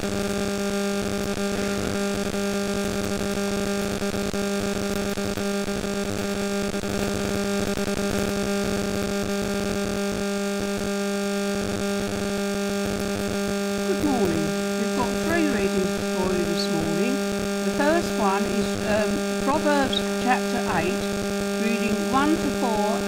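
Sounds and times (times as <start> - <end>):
electrical mains hum: 12.1 - 23.0.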